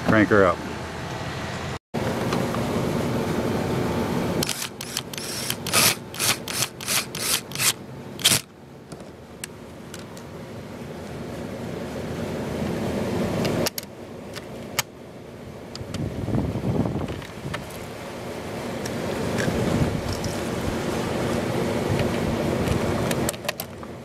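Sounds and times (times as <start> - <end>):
cordless drill driving screw: 4.4 - 8.4
sharp clicks: 4.4 - 8.5.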